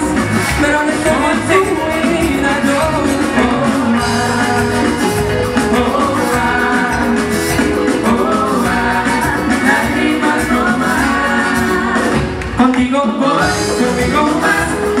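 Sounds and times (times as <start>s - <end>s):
drums and percussion: 0.0s - 15.0s
live pop band playing: 0.0s - 15.0s
person singing: 0.0s - 15.0s.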